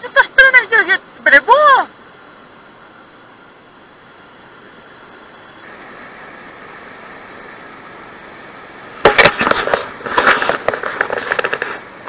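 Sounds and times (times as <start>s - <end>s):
running river water: 0.0s - 12.0s
crackling and knocking: 9.0s - 11.9s.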